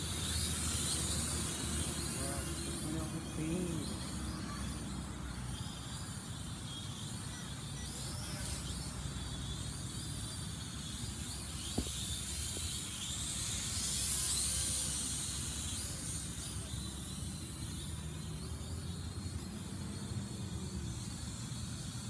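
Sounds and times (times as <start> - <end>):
toy drone motors whirring: 0.0 - 22.0.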